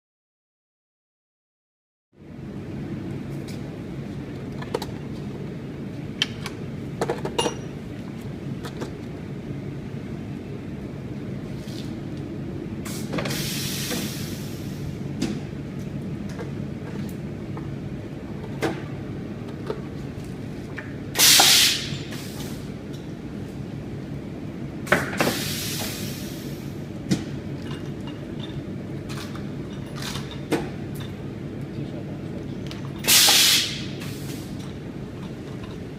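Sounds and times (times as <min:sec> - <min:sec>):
air hissing from press: 0:12.8 - 0:15.0, 0:21.2 - 0:22.8, 0:24.8 - 0:26.9, 0:33.0 - 0:34.7.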